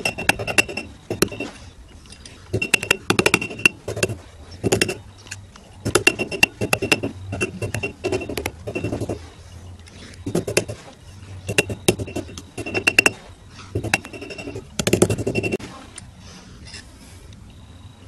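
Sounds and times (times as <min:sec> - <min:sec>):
hammer tapping metal: 0:00.0 - 0:01.5, 0:02.6 - 0:05.0, 0:05.9 - 0:09.2, 0:11.5 - 0:13.2, 0:13.8 - 0:15.6.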